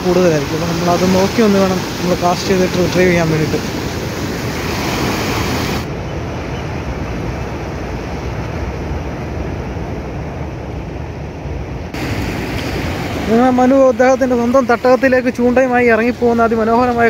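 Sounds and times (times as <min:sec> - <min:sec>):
sea waves against rocks: 0:00.0 - 0:06.0, 0:11.5 - 0:17.0
wind rumbling on microphone: 0:00.0 - 0:17.0.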